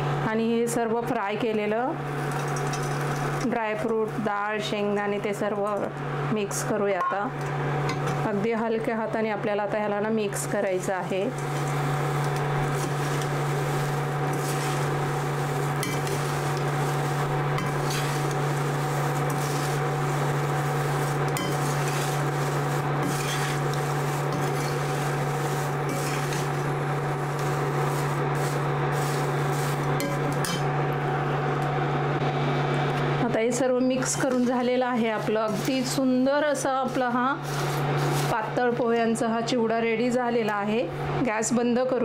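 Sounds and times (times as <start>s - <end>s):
steady low hum: 0.0s - 42.0s
spoon scraping a steel pan: 17.6s - 18.4s, 21.3s - 26.6s.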